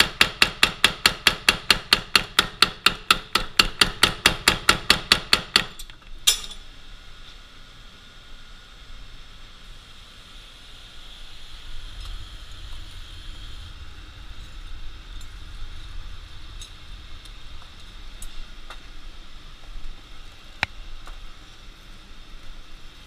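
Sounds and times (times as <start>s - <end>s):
forge burning with rushing noise: 0.0s - 23.0s
low rumble: 11.6s - 21.0s.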